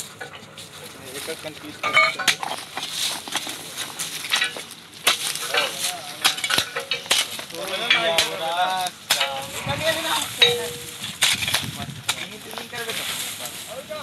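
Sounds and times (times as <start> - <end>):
voices calling out: 0.0 - 14.0.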